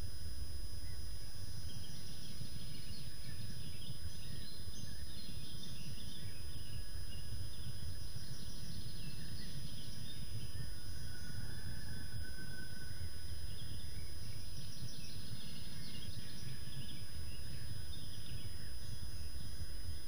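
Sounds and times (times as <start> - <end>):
faint high-pitched whine: 0.0 - 20.0
small birds chirping: 0.7 - 12.0, 13.0 - 20.0.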